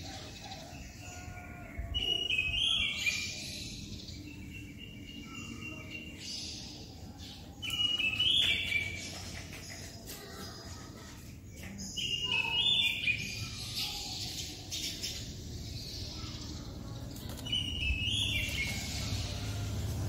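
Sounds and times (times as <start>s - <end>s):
songbird singing descending notes: 0.4s - 9.0s, 15.6s - 20.0s.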